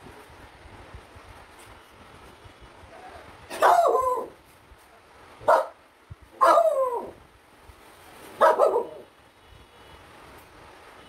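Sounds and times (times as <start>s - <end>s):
dog barking: 3.5s - 4.3s, 5.4s - 5.8s, 6.4s - 7.1s, 8.4s - 9.0s.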